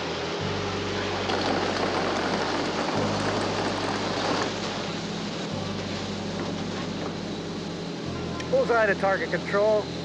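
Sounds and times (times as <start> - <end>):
background music with low bass: 0.0 - 10.0
water spray rushing onto car: 1.2 - 6.7.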